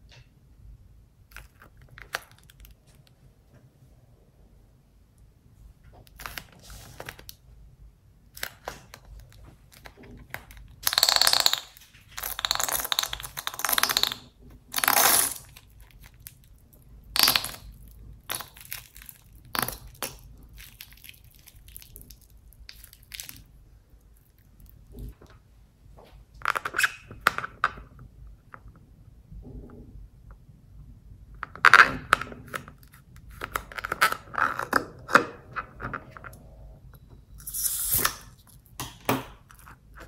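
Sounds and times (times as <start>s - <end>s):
glue squirting from balloon nozzle: 37.4s - 38.3s.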